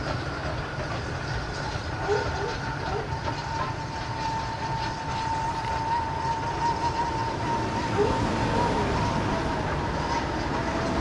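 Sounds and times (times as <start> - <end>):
train rumbling: 0.0 - 11.0
thin high wavering tone: 3.5 - 11.0.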